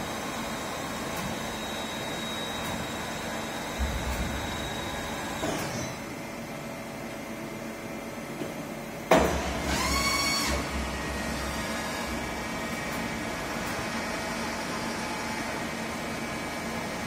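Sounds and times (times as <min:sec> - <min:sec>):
milling machine motor hum: 0:00.0 - 0:08.2, 0:09.3 - 0:17.0
machine whine surge: 0:03.5 - 0:06.2.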